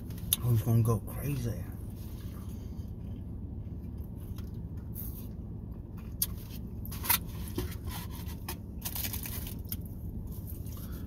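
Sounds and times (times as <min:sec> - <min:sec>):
low vehicle cabin hum: 0:00.0 - 0:11.0.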